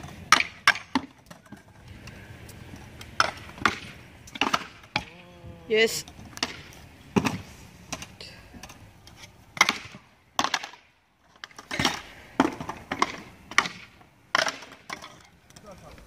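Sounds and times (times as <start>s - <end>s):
scooter wheels clacking on concrete: 0.0s - 16.0s
rolling hiss of wheels: 6.6s - 9.3s.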